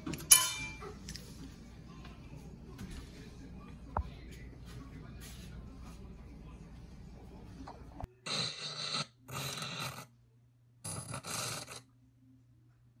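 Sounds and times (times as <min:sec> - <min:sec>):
faint low hum: 0:00.0 - 0:08.2, 0:11.8 - 0:13.0.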